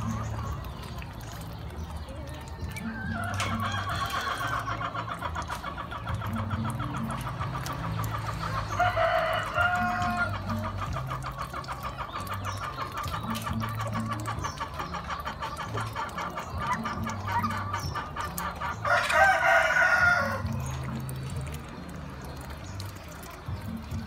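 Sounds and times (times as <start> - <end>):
faint background music: 0.0 - 24.0
young ducks calling: 0.0 - 24.0.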